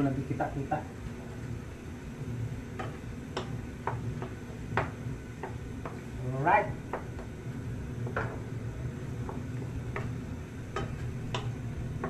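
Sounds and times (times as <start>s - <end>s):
low steady hum: 0.0s - 12.0s
utensil tapping frying pan: 2.7s - 6.2s, 6.8s - 12.0s.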